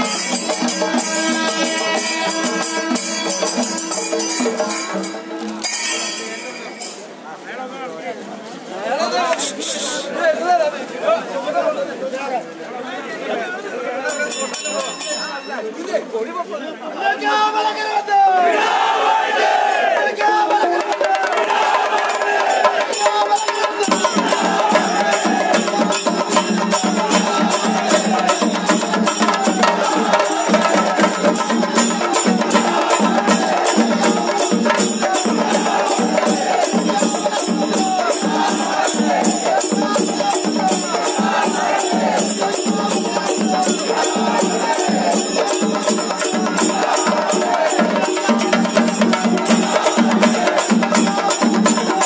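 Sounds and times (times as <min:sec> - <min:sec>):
procession percussion beat: 0:00.0 - 0:07.2, 0:18.8 - 0:52.0
crowd voices: 0:00.0 - 0:52.0
crowd shouting: 0:17.0 - 0:52.0.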